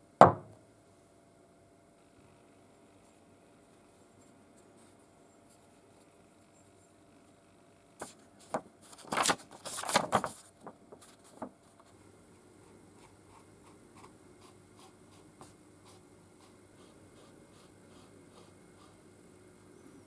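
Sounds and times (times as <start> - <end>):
knocks on wooden workbench: 0.2 - 0.5
paper rustling: 8.0 - 12.0.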